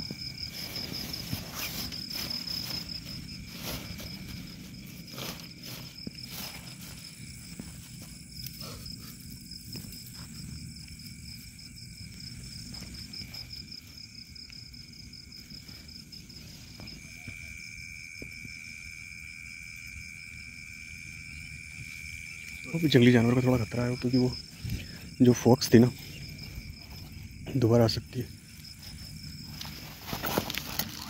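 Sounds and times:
tent fabric rustling: 0.0s - 10.6s, 28.5s - 31.0s
insect continuous whine: 0.0s - 31.0s
insects pulsing trill: 0.0s - 31.0s.

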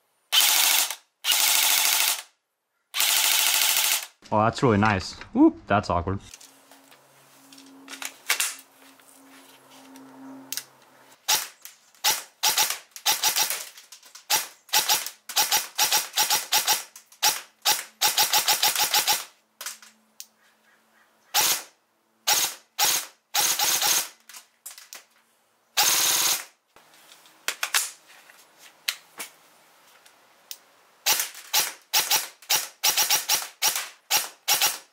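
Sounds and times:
airsoft gun firing bursts: 0.3s - 2.3s, 3.0s - 4.2s, 11.3s - 13.7s, 14.3s - 19.3s, 21.4s - 21.7s, 22.3s - 24.2s, 25.8s - 26.5s, 31.1s - 34.9s.

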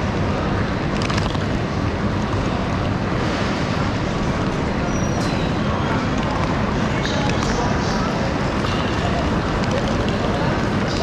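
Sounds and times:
rolling suitcases: 0.0s - 11.0s
rumbling station hall background: 0.0s - 11.0s.

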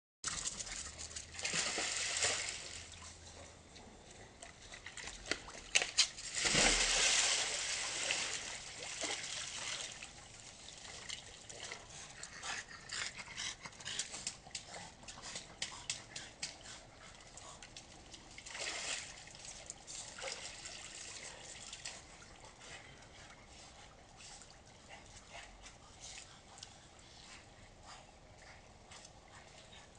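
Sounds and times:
water splashing in a hot tub: 0.3s - 3.2s, 4.6s - 12.2s, 14.1s - 25.2s.

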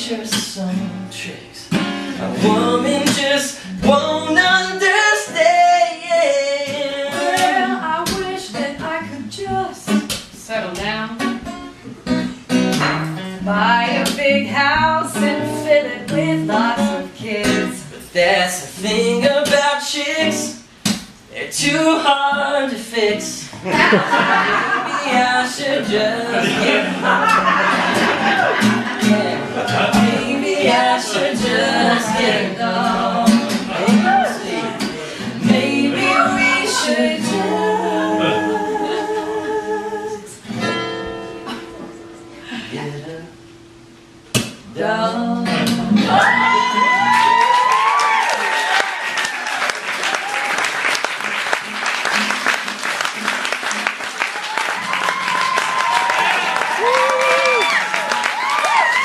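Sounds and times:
acoustic guitar strumming: 0.0s - 38.9s, 40.4s - 47.2s
person singing: 2.2s - 10.0s, 21.3s - 40.4s, 44.7s - 47.7s.

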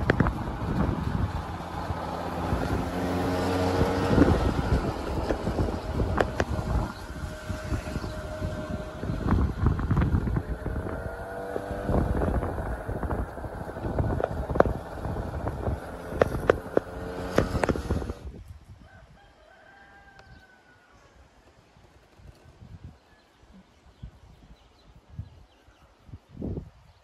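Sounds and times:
motor engine running: 0.0s - 18.3s
wind on microphone: 0.0s - 20.4s, 21.7s - 27.0s
drawn-out bird call: 1.5s - 18.2s.

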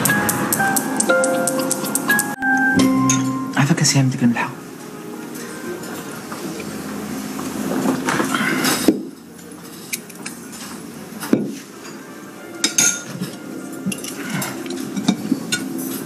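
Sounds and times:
dishes and glasses clinking: 1.5s - 3.6s, 11.2s - 16.0s.

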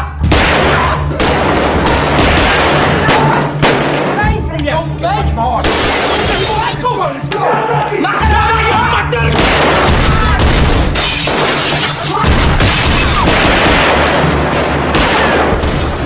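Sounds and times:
rapid gunfire: 0.3s - 4.2s, 12.2s - 16.0s.

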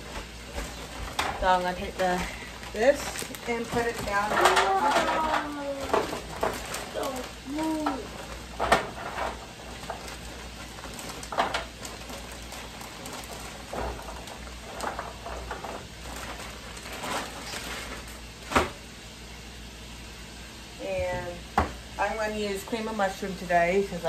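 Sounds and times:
plastic bag crinkling: 0.0s - 18.5s.

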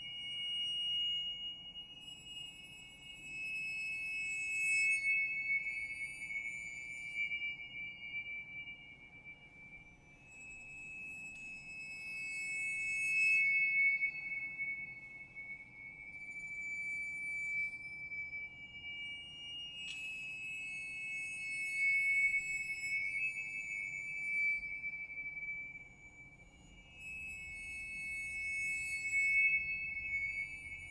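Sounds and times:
finger cymbals ringing: 0.0s - 30.9s.

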